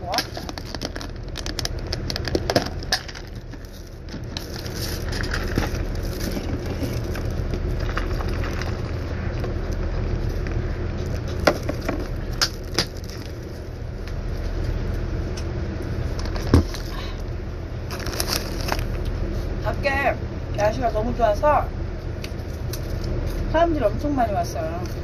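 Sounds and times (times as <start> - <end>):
steady low rumble: 0.0 - 25.0
plastic packaging crinkling: 0.1 - 13.7, 16.1 - 19.2.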